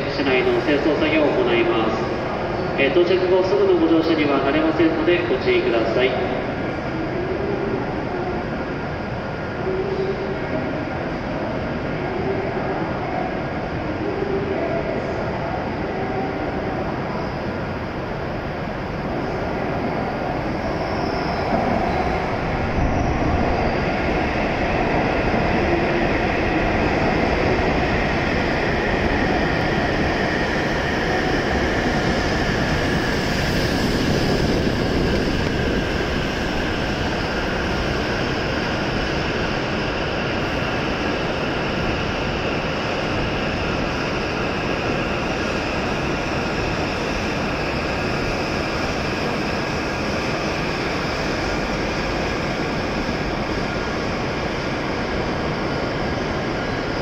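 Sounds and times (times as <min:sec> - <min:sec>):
train running rumble: 0:17.6 - 0:57.0.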